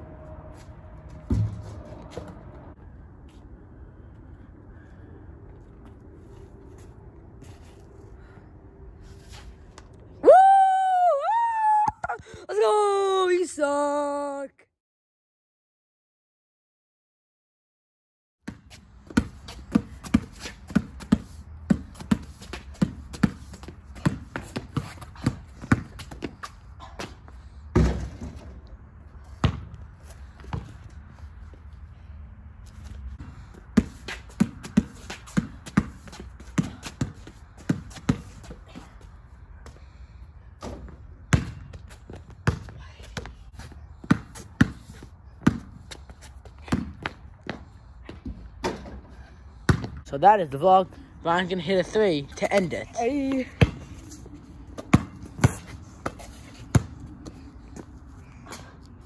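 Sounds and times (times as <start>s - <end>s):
basketball bouncing on pavement: 1.3s - 2.6s, 18.4s - 28.6s, 29.2s - 31.0s, 32.8s - 39.0s, 40.6s - 50.1s, 52.5s - 58.7s.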